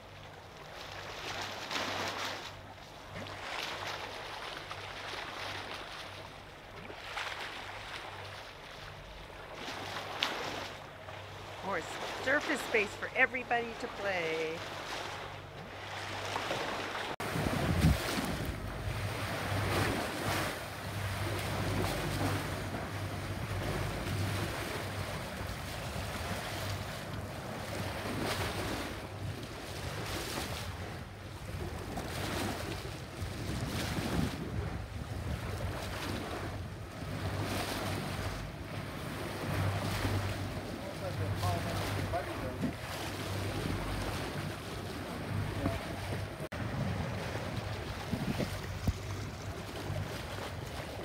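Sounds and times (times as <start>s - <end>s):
water rushing and splashing: 0.0s - 51.0s
low steady hum: 17.2s - 28.2s
wind buffeting microphone: 17.2s - 51.0s.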